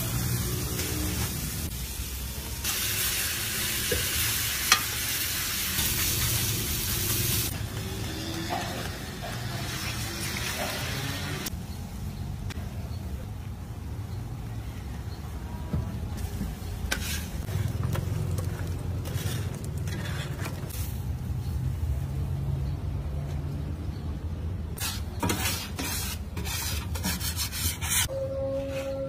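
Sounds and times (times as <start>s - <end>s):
metal spatula scraping griddle: 16.9s - 17.8s, 18.6s - 21.0s, 24.8s - 29.0s.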